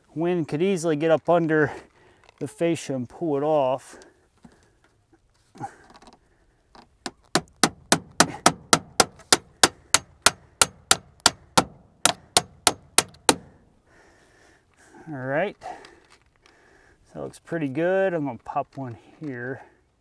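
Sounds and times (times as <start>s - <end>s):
hammer striking nails: 7.3s - 13.5s.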